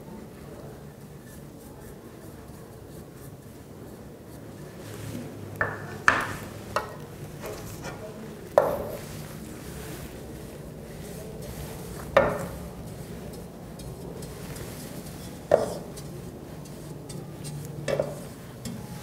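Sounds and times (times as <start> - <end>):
brush scrubbing cup: 8.6 - 19.0.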